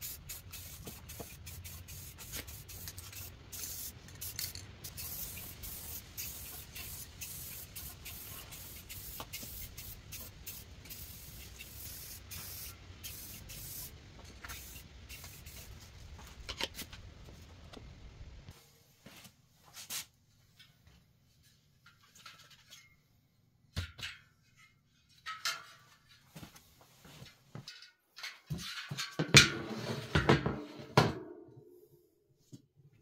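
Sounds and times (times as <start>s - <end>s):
spray paint can hissing: 0.0s - 15.8s.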